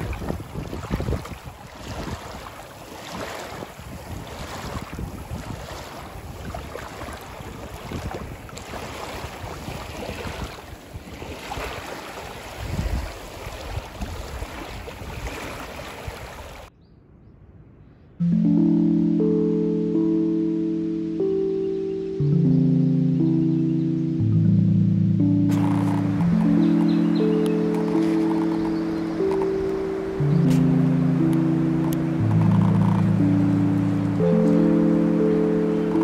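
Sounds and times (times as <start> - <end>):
waves washing against shore: 0.0 - 16.7, 25.5 - 36.0
wind buffeting microphone: 0.0 - 18.2, 25.5 - 34.3
wind gusting: 0.0 - 18.2, 25.2 - 36.0
music: 18.2 - 36.0.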